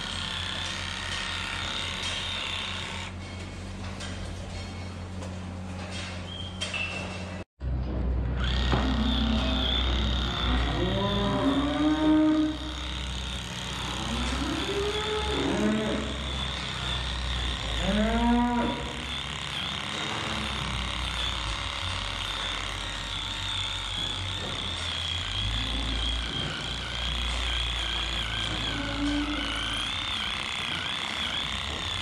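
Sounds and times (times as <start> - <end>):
electric tool whining: 0.0 - 3.2, 8.3 - 32.0
cattle mooing: 8.7 - 13.0, 13.6 - 20.8, 24.0 - 31.9.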